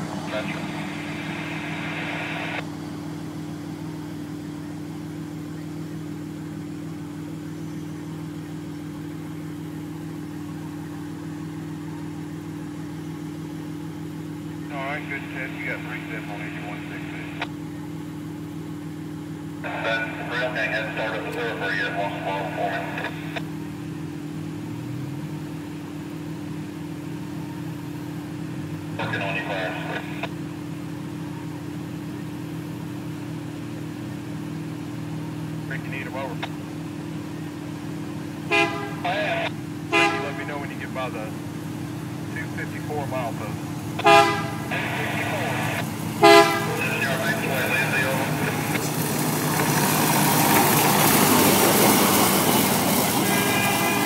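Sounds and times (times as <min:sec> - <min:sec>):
steady high-pitched tone: 0:00.0 - 0:02.8
vehicle engine idling: 0:00.0 - 0:54.0.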